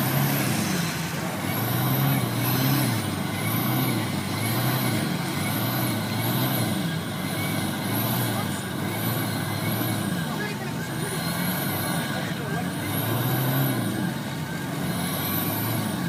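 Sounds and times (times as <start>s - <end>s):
engine running: 0.0s - 16.0s.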